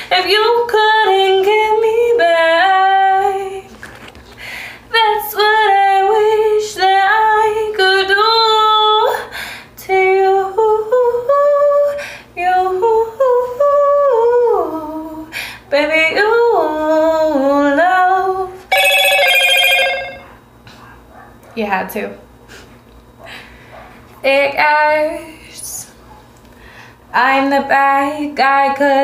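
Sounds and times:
woman singing unaccompanied: 0.0 - 3.7, 4.9 - 9.2, 9.8 - 18.6, 24.2 - 25.9, 27.2 - 29.0.

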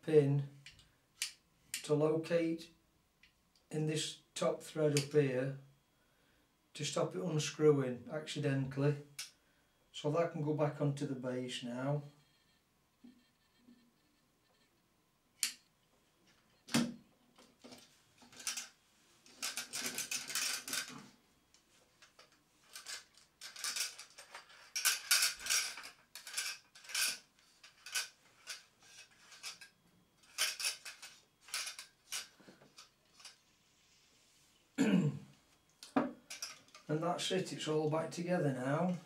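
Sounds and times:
metal lamp parts clicking and scraping: 17.4 - 21.1, 22.0 - 33.4, 35.8 - 36.9.

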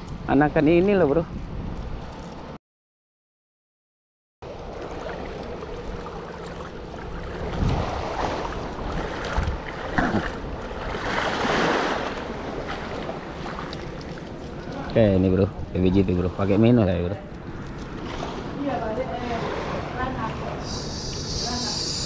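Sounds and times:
small waves lapping shore: 4.4 - 15.5, 16.1 - 22.0
wind buffeting microphone: 7.0 - 13.3.

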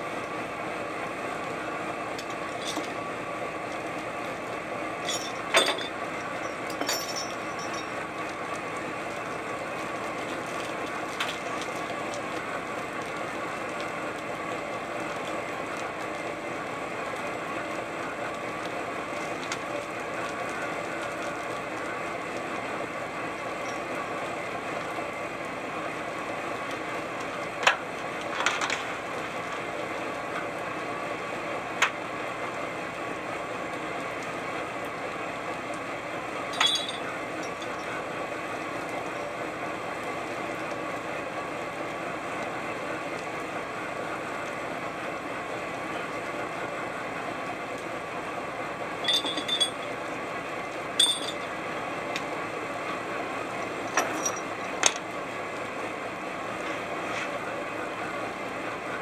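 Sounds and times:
boat engine drone: 0.0 - 9.7, 45.0 - 59.0
metallic clanks and knocks: 5.1 - 6.0, 36.6 - 37.0, 49.1 - 49.9.

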